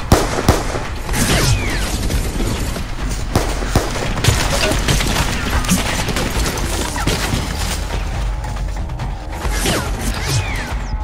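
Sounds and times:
gunshots and bullet impacts: 0:00.0 - 0:08.0.

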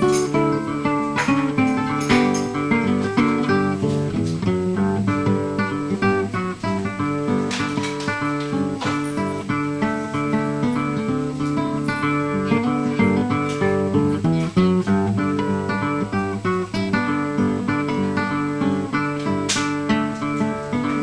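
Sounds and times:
plucked acoustic guitar: 0:00.0 - 0:21.0.

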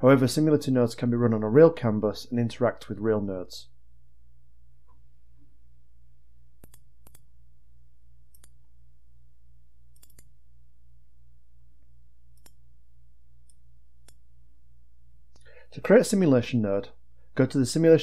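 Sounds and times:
low steady hum: 0:00.0 - 0:18.0
mouse buttons clicking: 0:06.6 - 0:07.3, 0:08.3 - 0:08.6, 0:10.0 - 0:10.3, 0:12.3 - 0:12.6.

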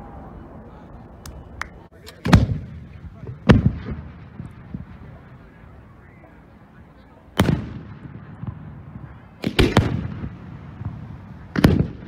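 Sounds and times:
firework bangs: 0:02.2 - 0:05.7, 0:07.3 - 0:12.0.

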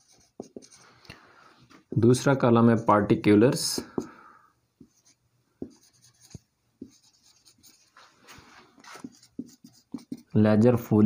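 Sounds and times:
marker writing on whiteboard: 0:00.0 - 0:00.9, 0:03.6 - 0:04.2, 0:04.8 - 0:10.4.

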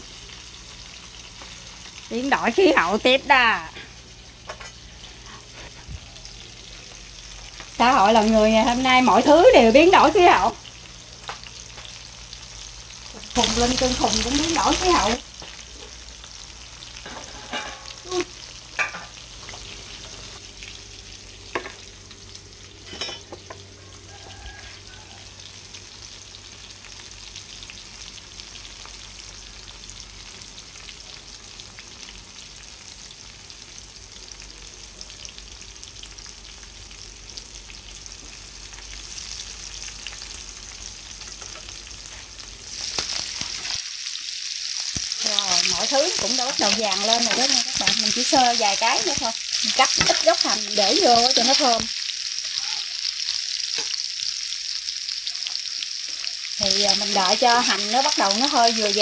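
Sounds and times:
hot oil sizzling in a frying pan: 0:00.0 - 0:59.0.

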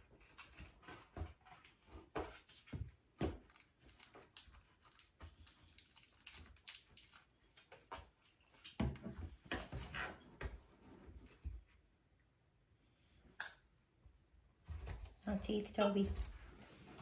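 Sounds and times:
monkeys handling small toys: 0:00.1 - 0:10.0.

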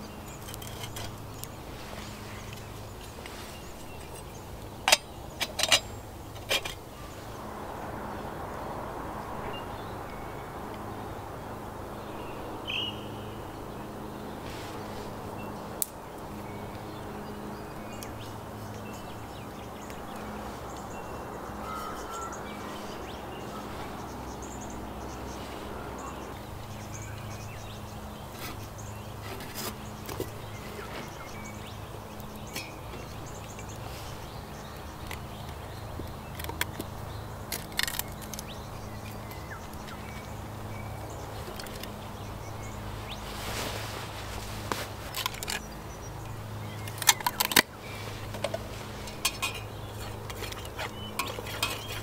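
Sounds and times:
bird chirp: 0:00.0 - 0:52.0
twig fire hissing: 0:14.4 - 0:16.0
light metal clinks: 0:48.3 - 0:52.0
metal lid clinking: 0:49.0 - 0:52.0.

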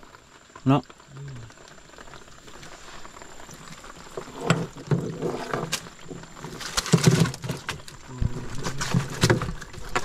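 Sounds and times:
mesh net knocking and rustling: 0:04.4 - 0:10.0.

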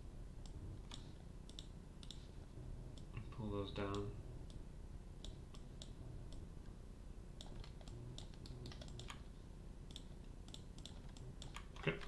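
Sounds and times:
keyboard and mouse clicking: 0:00.4 - 0:02.2, 0:07.4 - 0:09.2, 0:09.9 - 0:12.0.

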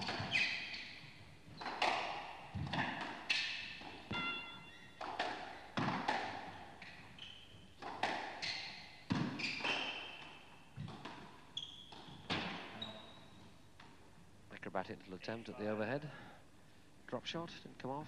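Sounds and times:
squash ball struck by rackets: 0:00.0 - 0:00.4, 0:01.6 - 0:06.9, 0:07.8 - 0:08.4, 0:09.0 - 0:11.3, 0:11.9 - 0:12.8
shoes squeaking on court floor: 0:00.0 - 0:05.2, 0:05.8 - 0:13.6.

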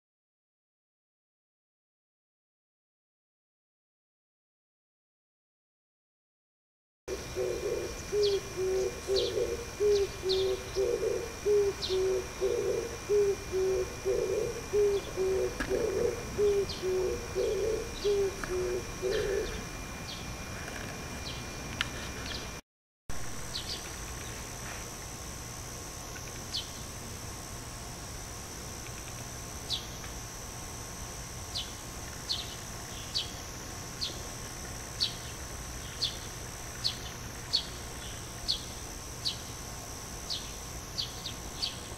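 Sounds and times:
dove cooing: 0:07.1 - 0:19.8
small birds chirping: 0:07.1 - 0:20.3, 0:31.5 - 0:34.2, 0:35.0 - 0:39.6, 0:40.3 - 0:41.9.

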